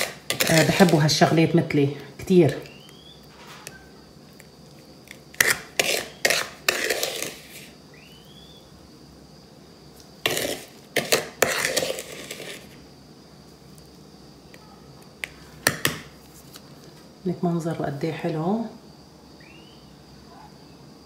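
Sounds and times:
spoon scraping a bowl: 0:00.0 - 0:01.4, 0:05.1 - 0:07.8, 0:10.2 - 0:12.8.

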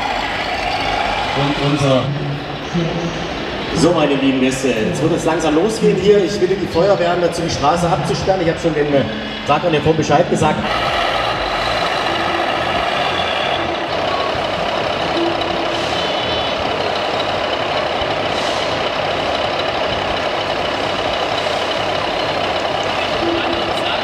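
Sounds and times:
diesel truck engine sound: 0:00.0 - 0:24.0
brief electronic tones: 0:12.0 - 0:16.9, 0:23.1 - 0:24.0.

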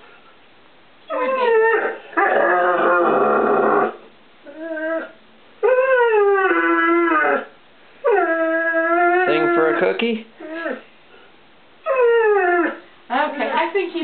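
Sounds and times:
dog howling: 0:01.1 - 0:10.9, 0:11.8 - 0:12.9.

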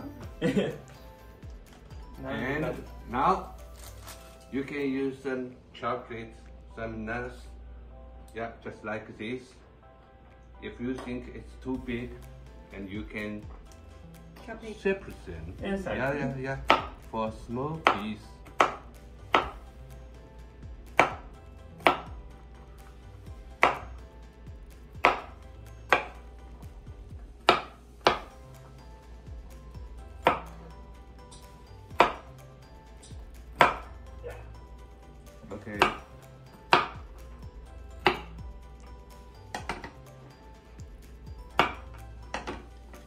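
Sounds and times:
knife chopping on wooden board: 0:16.6 - 0:17.0, 0:17.8 - 0:19.7, 0:20.9 - 0:22.2, 0:23.6 - 0:23.9, 0:25.0 - 0:26.2, 0:27.4 - 0:28.3, 0:30.2 - 0:30.5, 0:31.9 - 0:32.3, 0:33.6 - 0:33.9, 0:35.7 - 0:36.1, 0:36.7 - 0:37.1, 0:38.0 - 0:38.4, 0:41.5 - 0:42.7.

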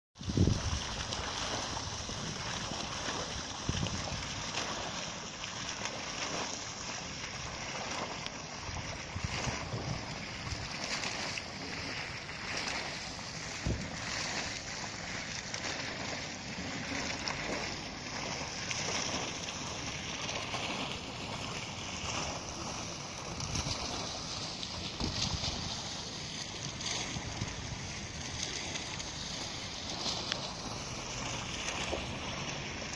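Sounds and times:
wind thumps on microphone: 0:00.2 - 0:01.0, 0:03.7 - 0:04.4, 0:08.7 - 0:10.6, 0:13.5 - 0:14.1, 0:24.8 - 0:25.7, 0:27.1 - 0:27.9
fountain water splashing: 0:00.2 - 0:32.9.

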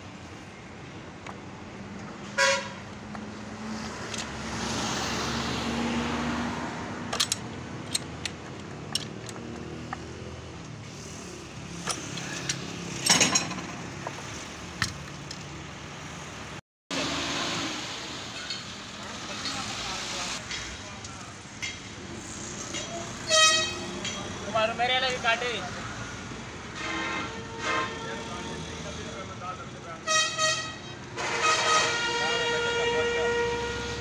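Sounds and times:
road traffic: 0:00.0 - 0:34.0
car horn toot: 0:02.4 - 0:02.8, 0:23.3 - 0:23.9, 0:30.1 - 0:34.0
vehicle passing: 0:03.2 - 0:13.1
pipe wrench clicking on steel: 0:07.1 - 0:09.4.

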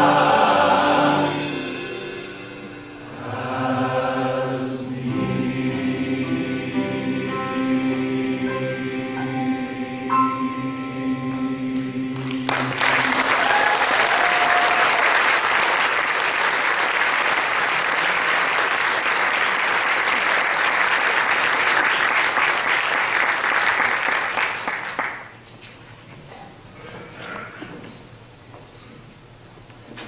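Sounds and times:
men's chorus singing: 0:00.0 - 0:02.3, 0:03.0 - 0:13.3
audience applauding: 0:12.2 - 0:25.4.

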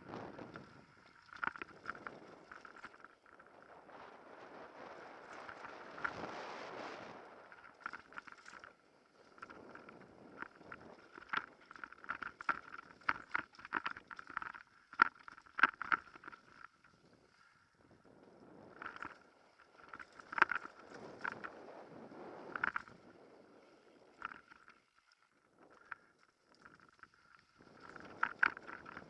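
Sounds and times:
wind rushing over microphone: 0:03.6 - 0:07.6.

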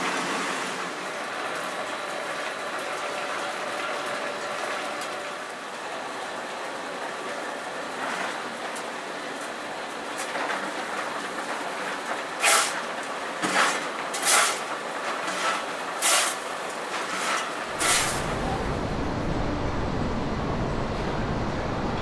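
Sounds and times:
extrusion machinery rumbling: 0:16.9 - 0:22.0.

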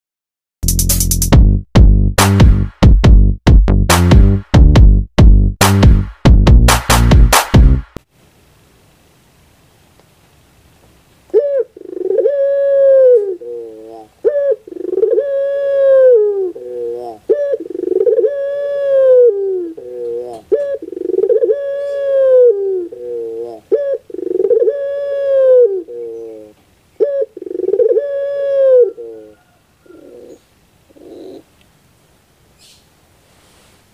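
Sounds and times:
dove cooing: 0:11.3 - 0:31.6.

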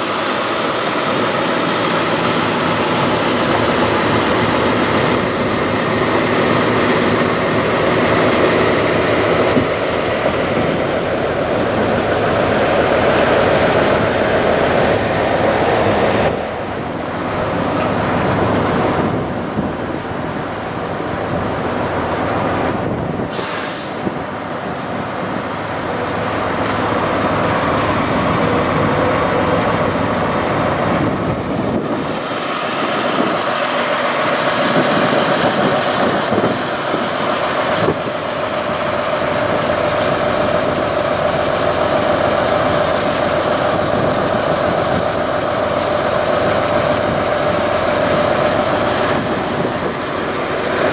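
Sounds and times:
diesel truck engines idling: 0:00.0 - 0:50.9
air hiss: 0:23.3 - 0:24.1.

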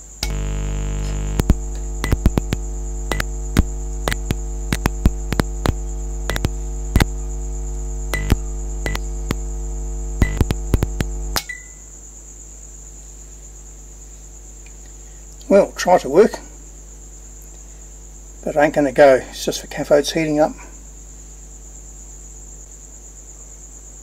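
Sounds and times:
fluorescent lamp ballast humming: 0:00.0 - 0:11.4
sharp lamp starter clicks: 0:01.0 - 0:07.3, 0:08.1 - 0:09.5.

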